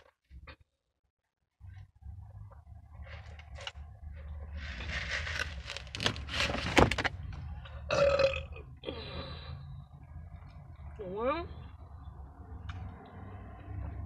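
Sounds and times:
rustling and handling noise: 1.6s - 7.2s
woman burping: 7.9s - 9.0s.

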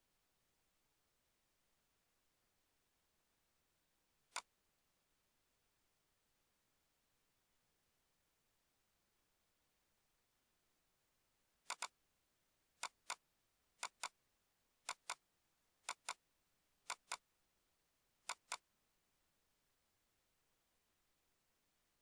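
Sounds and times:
computer mouse clicks: 4.3s - 4.5s, 11.7s - 12.0s, 12.8s - 13.2s, 13.8s - 14.2s, 14.8s - 15.2s, 15.8s - 16.2s, 16.9s - 17.2s, 18.3s - 18.6s.

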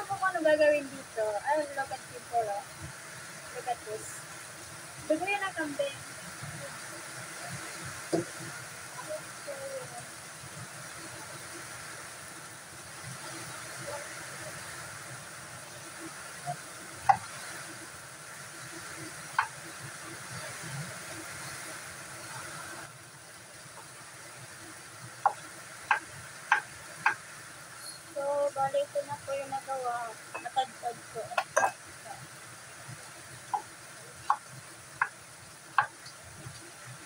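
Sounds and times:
background hiss: 0.0s - 37.0s
knife tapping on wooden board: 25.2s - 27.2s.

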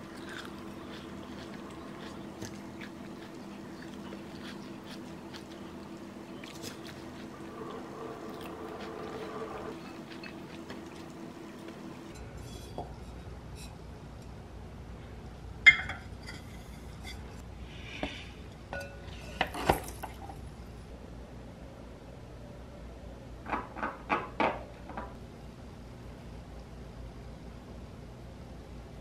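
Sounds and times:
low room hum: 0.0s - 29.0s.

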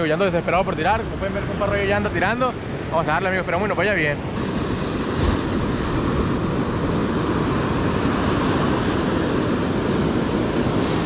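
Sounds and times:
ocean surf breaking on beach: 0.2s - 11.0s
wind on microphone: 4.2s - 11.0s.

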